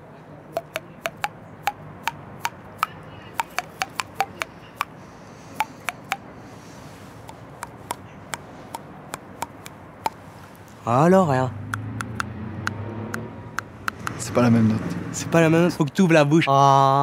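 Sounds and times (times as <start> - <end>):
sharp irregular clicks: 0.6 - 6.2, 7.2 - 10.6, 11.7 - 14.3.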